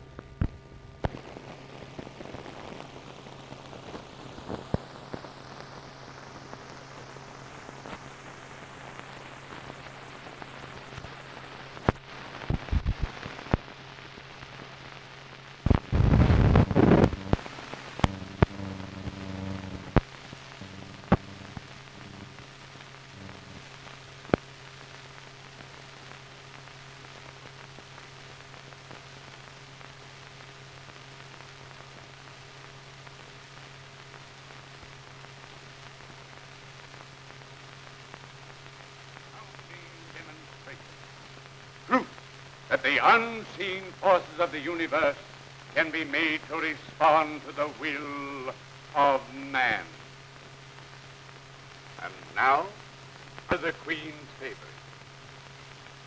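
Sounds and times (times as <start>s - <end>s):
film soundtrack hiss and crackle: 0.0s - 56.0s
steady low hum: 0.0s - 56.0s
sharp clicks and pops: 0.1s - 5.8s, 10.8s - 13.8s, 15.6s - 24.7s
loud burst of crackling: 0.4s - 56.0s.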